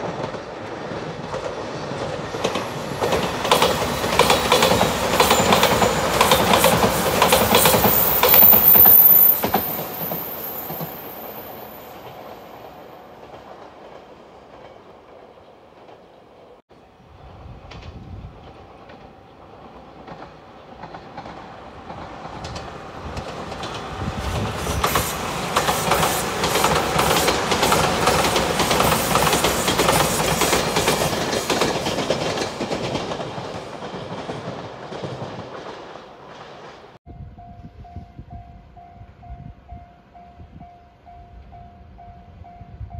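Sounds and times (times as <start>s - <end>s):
train wheels clacking over rail joints: 0.0s - 11.1s, 17.7s - 37.0s
electric train passing: 0.0s - 42.9s.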